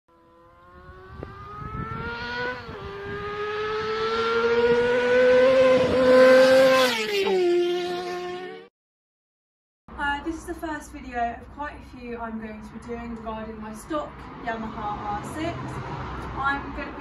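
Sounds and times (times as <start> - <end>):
motorcycle engine accelerating: 0.1 - 8.7.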